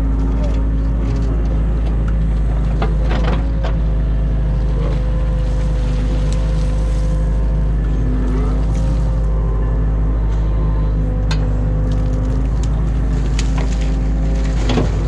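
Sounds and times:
excavator diesel engine running: 0.0s - 15.0s
bucket digging silt: 4.7s - 9.3s, 11.8s - 15.0s.

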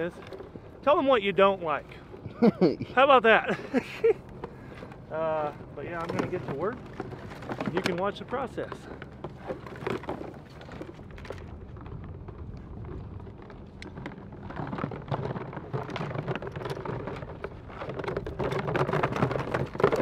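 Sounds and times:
wind rumble on microphone: 0.0s - 20.0s
decoys rustling and knocking: 5.8s - 20.0s.

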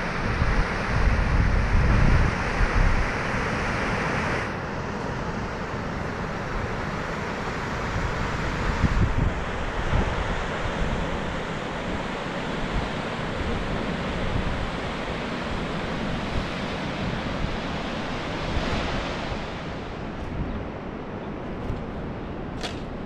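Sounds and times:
wind buffeting microphone: 0.0s - 3.3s, 7.7s - 23.0s.

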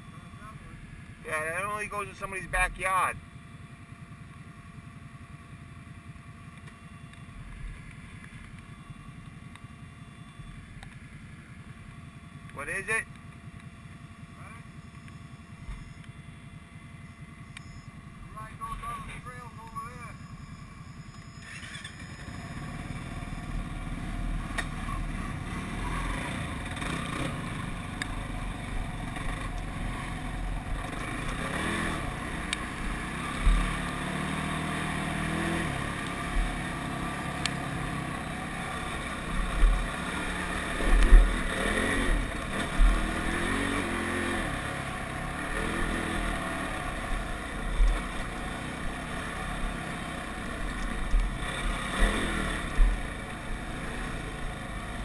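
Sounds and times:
atv engine revving: 0.0s - 3.2s, 10.7s - 55.0s.

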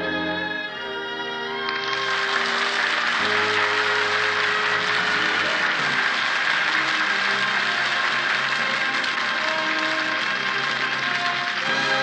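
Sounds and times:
orchestral music: 0.0s - 12.0s
audience applause: 1.6s - 12.0s.

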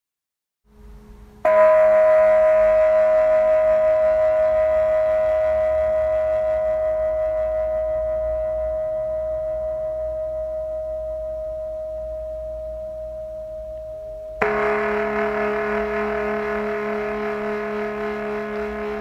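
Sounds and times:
ringing bell-like tones: 1.4s - 19.0s.

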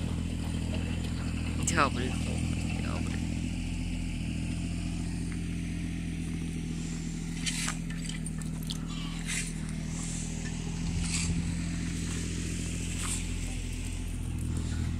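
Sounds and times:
low mechanical hum: 0.0s - 14.9s
clicks and scrapes: 7.4s - 11.5s.

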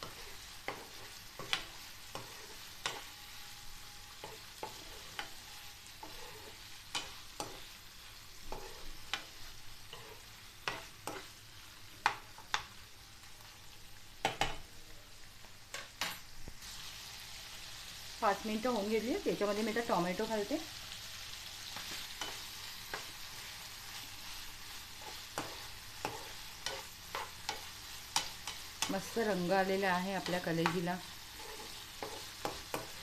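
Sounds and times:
spatula scraping pan: 0.0s - 11.3s, 21.8s - 29.6s, 30.2s - 33.0s
liver sizzling in oil: 0.0s - 33.0s.

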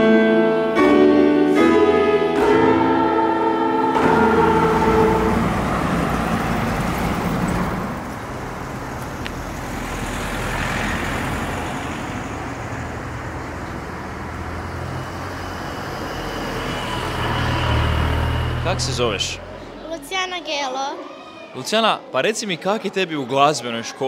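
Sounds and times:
choir chord: 0.0s - 7.2s
road traffic hum: 1.4s - 20.7s
car passing: 1.5s - 20.7s.

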